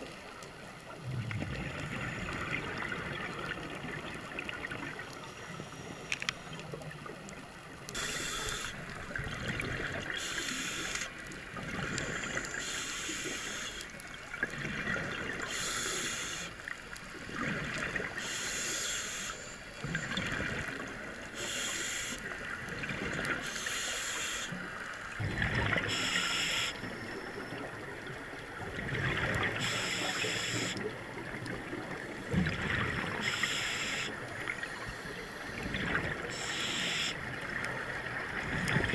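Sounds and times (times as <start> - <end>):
underwater bubbling: 0.0 - 38.9
watery underwater background: 0.0 - 38.9
scuba regulator breathing: 8.0 - 8.9, 10.1 - 11.1, 11.8 - 13.9, 15.4 - 16.6, 18.2 - 20.1, 21.3 - 22.3, 23.4 - 24.6, 25.9 - 27.0, 29.6 - 30.9, 33.2 - 35.6, 36.2 - 37.3.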